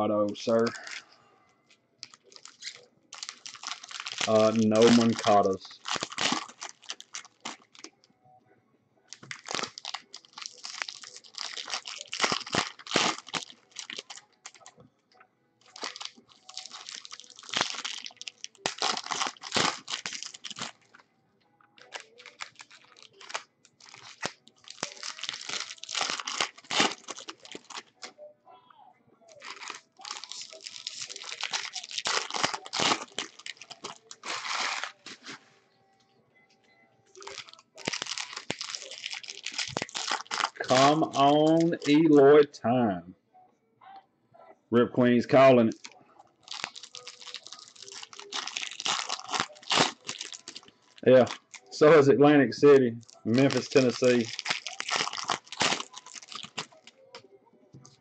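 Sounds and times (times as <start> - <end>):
foil wrapper crinkling and tearing: 0.4 - 1.0, 2.0 - 8.0, 9.1 - 14.7, 15.6 - 20.9, 21.8 - 28.2, 29.3 - 35.4, 37.1 - 42.1, 45.7 - 57.1.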